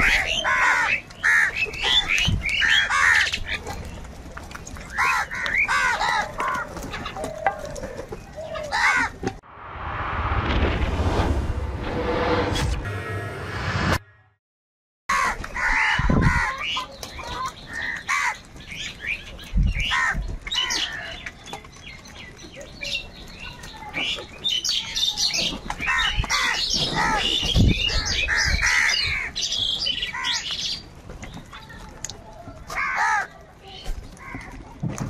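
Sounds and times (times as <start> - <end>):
crows cawing: 0.0 - 3.6, 4.9 - 9.2, 15.1 - 18.4, 19.8 - 21.2, 25.8 - 27.3, 28.0 - 29.4, 30.1 - 30.6, 32.7 - 33.4.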